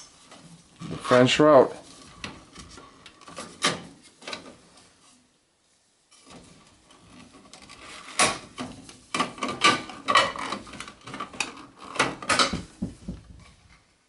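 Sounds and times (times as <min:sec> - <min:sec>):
hard plastic clattering: 0:06.2 - 0:13.8.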